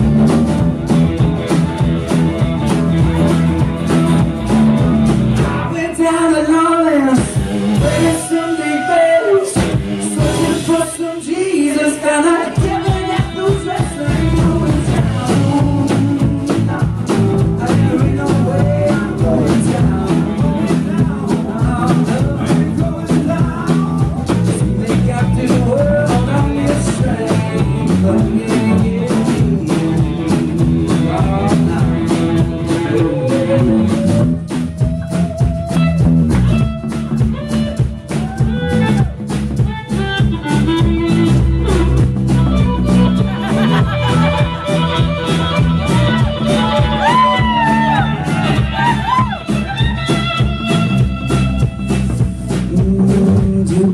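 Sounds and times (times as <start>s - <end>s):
rock band playing: 0.0s - 53.9s
man singing: 5.4s - 35.9s, 45.2s - 53.9s.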